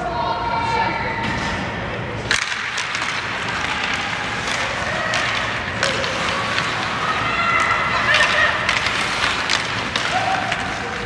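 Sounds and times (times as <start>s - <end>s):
hockey sticks and puck clacking: 1.5s - 11.0s
skates scraping ice: 2.2s - 11.0s.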